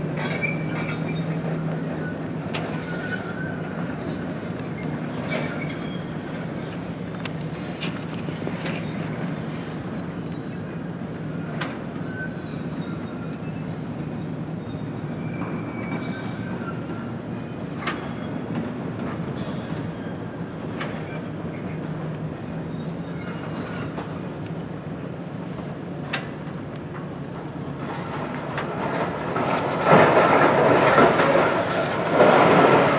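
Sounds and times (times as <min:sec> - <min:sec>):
high metallic squeals: 0:00.0 - 0:07.0, 0:11.2 - 0:18.8.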